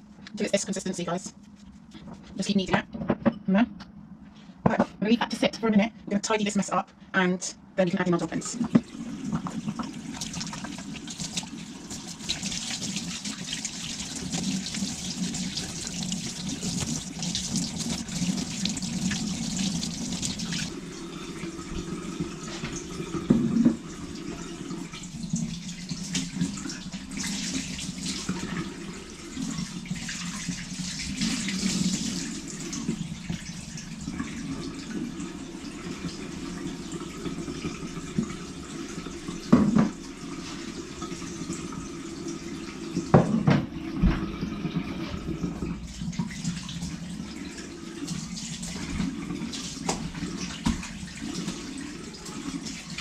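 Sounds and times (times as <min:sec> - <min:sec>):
tap running into sink: 0:22.2 - 0:24.0, 0:39.0 - 0:40.4, 0:43.0 - 0:45.3, 0:48.8 - 0:51.8
knock: 0:43.2 - 0:44.2.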